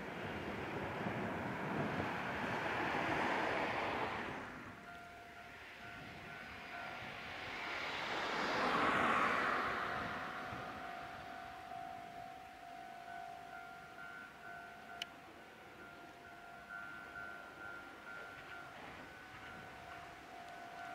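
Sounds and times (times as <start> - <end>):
car tyres on road: 0.0 - 12.6
tram rolling: 0.0 - 20.9.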